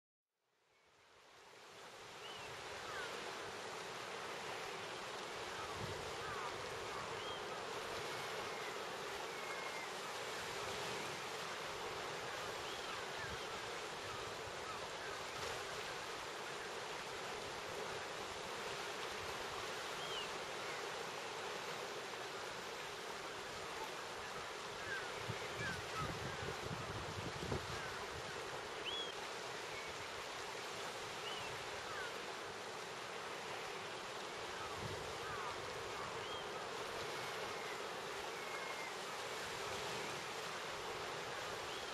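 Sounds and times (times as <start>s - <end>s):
wind: 0.4s - 41.9s
faint gull calls: 34.6s - 36.4s.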